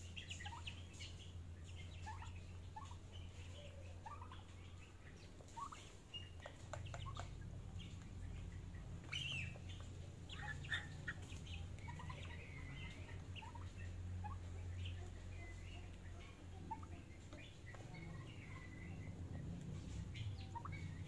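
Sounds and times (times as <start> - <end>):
beaks pecking at feed pan: 0.0 - 21.0
young poultry chirping: 0.0 - 21.0.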